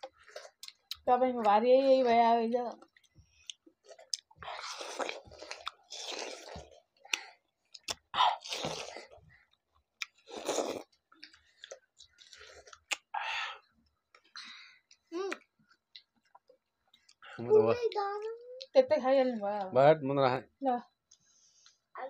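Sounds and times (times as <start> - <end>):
people chewing crunchy watermelon: 0.0 - 1.1, 2.7 - 13.5.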